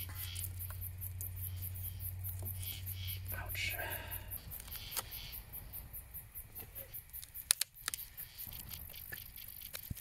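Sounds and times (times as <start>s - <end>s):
kindling snapping in campfire: 0.0s - 1.4s, 6.6s - 10.0s.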